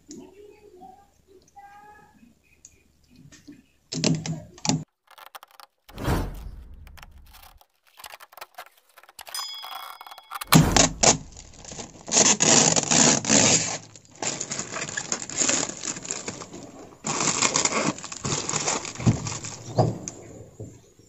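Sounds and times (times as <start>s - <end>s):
plastic film crinkling: 4.9s - 5.9s, 7.0s - 20.2s.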